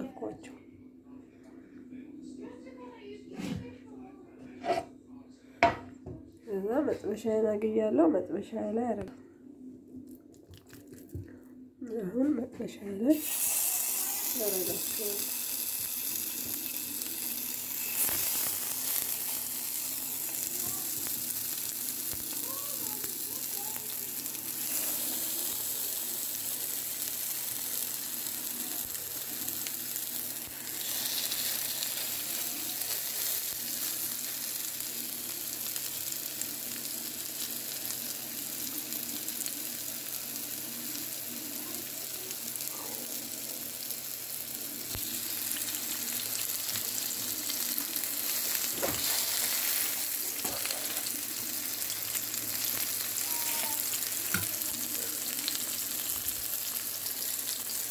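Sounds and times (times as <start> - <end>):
burger patties sizzling in oil: 13.1 - 57.9.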